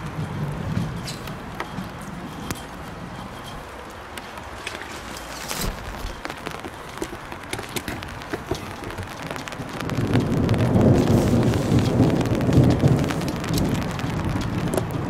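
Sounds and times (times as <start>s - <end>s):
raindrops ticking on surfaces: 0.0s - 15.0s
steady rain: 0.0s - 15.0s
low rumble of thunder: 8.0s - 15.0s.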